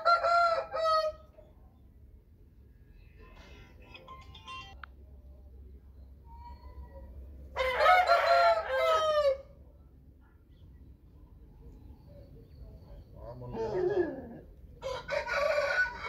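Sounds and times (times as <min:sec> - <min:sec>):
rooster crowing: 0:00.0 - 0:01.3, 0:07.5 - 0:09.6, 0:14.8 - 0:16.0
faint chirps: 0:05.3 - 0:07.4, 0:10.4 - 0:13.8.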